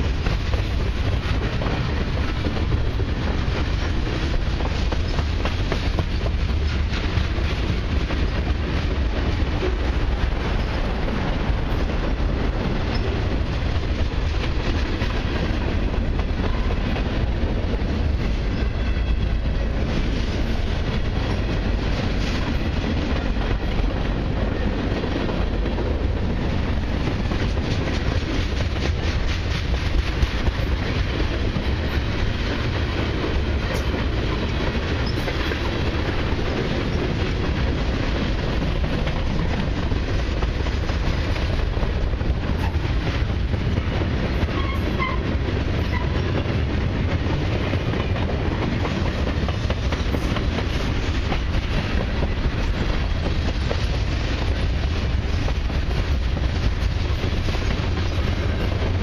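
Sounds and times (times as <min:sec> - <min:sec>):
freight train wheels rumbling: 0:00.0 - 0:59.0
rapid clicks of wheels on track: 0:00.0 - 0:59.0.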